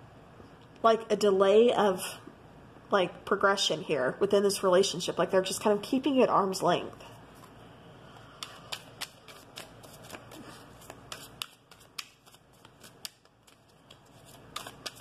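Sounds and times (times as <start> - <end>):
cards shuffling: 8.3 - 15.0.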